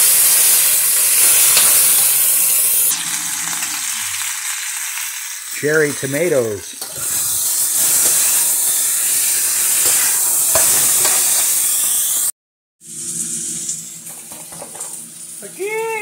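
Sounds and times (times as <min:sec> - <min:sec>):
food sizzling in a wok: 0:00.0 - 0:16.0
metal spatula scraping: 0:01.1 - 0:02.2, 0:06.9 - 0:11.7.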